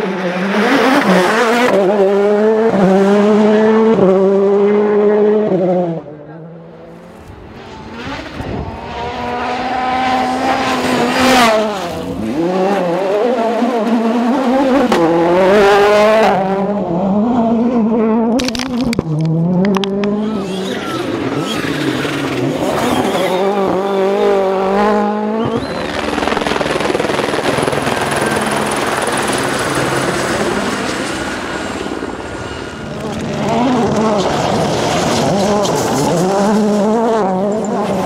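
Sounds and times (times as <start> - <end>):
rally car engines revving: 0.0 - 38.0
helicopter rotor and turbine whine: 25.6 - 34.8.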